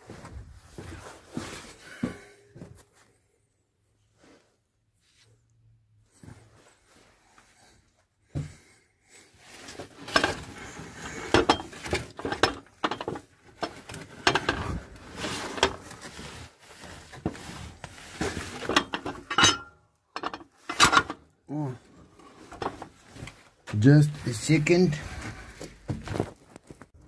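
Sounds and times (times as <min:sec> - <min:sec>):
metal tools clinking and clattering: 0:09.9 - 0:15.9, 0:18.3 - 0:21.2, 0:22.4 - 0:22.9.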